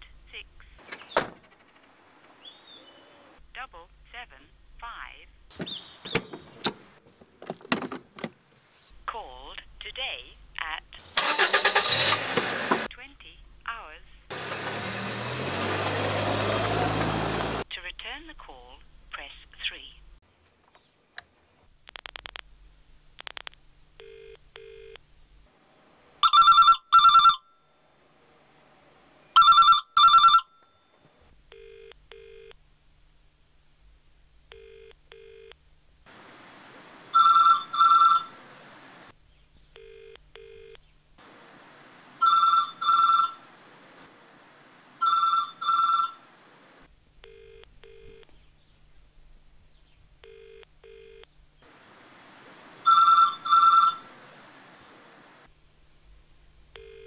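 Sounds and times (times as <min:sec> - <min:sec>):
telephone double ring: 0:37.2 - 0:38.3, 0:42.2 - 0:43.4, 0:45.0 - 0:46.2, 0:52.9 - 0:54.0.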